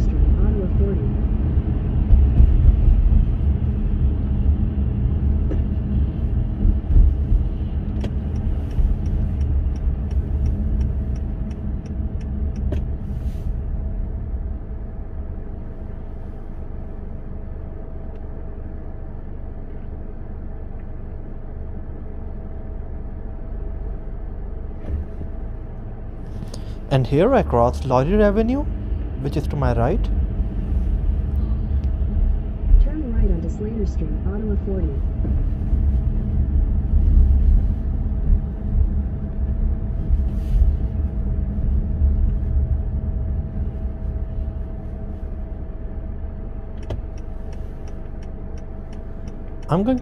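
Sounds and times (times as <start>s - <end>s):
car engine and road noise: 0.0s - 50.0s
light ticks: 8.0s - 12.9s, 46.8s - 50.0s.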